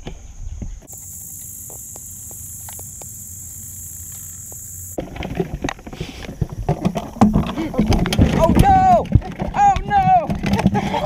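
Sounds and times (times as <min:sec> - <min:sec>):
insects buzzing: 0:00.0 - 0:07.8.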